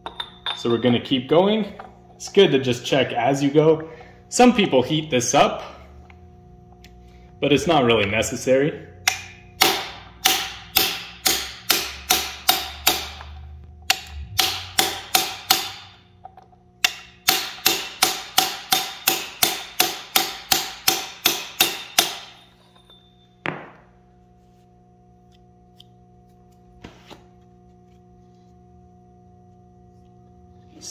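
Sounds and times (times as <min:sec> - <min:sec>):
ringing metal hammer blows: 0:13.9 - 0:16.0, 0:16.8 - 0:23.7.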